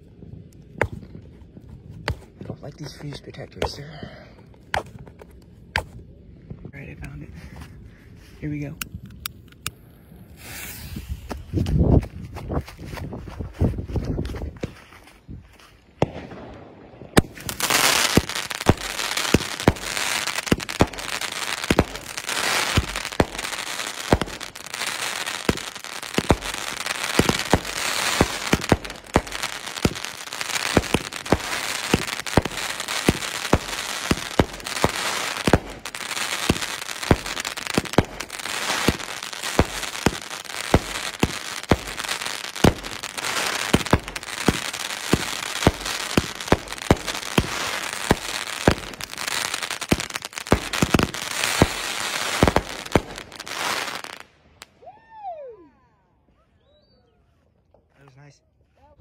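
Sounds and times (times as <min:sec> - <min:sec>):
firework crackling: 0:10.2 - 0:12.0, 0:15.8 - 0:54.8
firework launch thumps and bursts: 0:16.0 - 0:24.7, 0:25.4 - 0:54.2.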